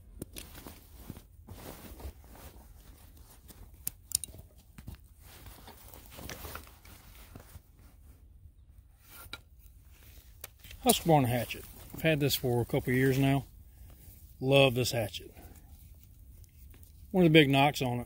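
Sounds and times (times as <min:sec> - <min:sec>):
fabric and webbing rustling: 0:00.0 - 0:08.4, 0:09.1 - 0:17.2
buckle clicks: 0:03.8 - 0:04.4.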